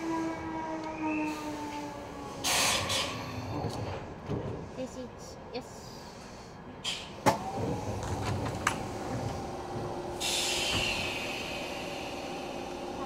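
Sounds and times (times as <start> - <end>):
train air hiss: 2.4 - 3.5, 10.0 - 13.0
electric train humming: 4.8 - 13.0.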